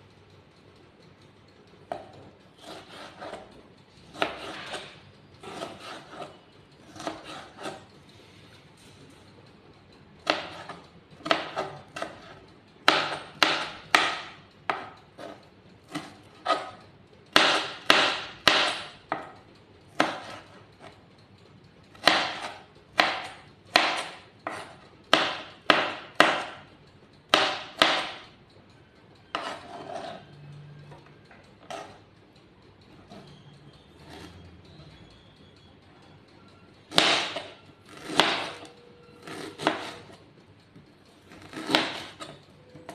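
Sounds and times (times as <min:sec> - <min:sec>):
knife chopping on plastic board: 0:01.9 - 0:03.5, 0:04.1 - 0:07.8, 0:10.2 - 0:20.9, 0:21.9 - 0:26.7, 0:27.3 - 0:28.2, 0:29.3 - 0:30.2, 0:36.9 - 0:40.2, 0:41.3 - 0:42.9.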